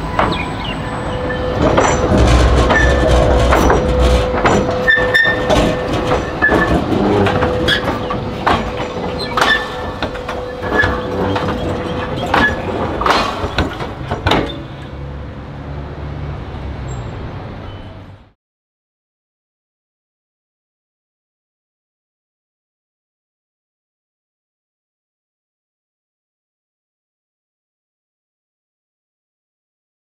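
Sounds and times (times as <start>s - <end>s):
tram wheels clacking over rails: 0.0s - 18.2s
tram low rumble: 0.0s - 18.4s.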